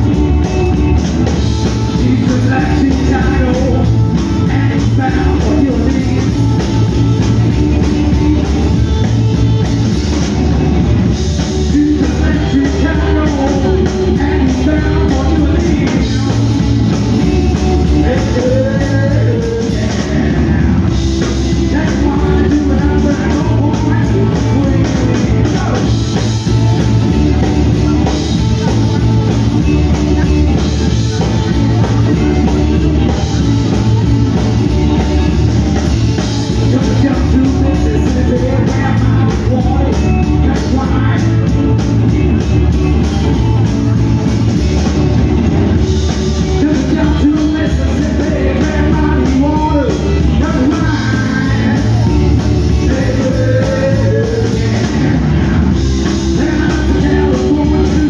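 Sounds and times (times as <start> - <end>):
drum kit: 0.0 - 58.0
electric guitars: 0.0 - 58.0
person singing: 0.0 - 58.0.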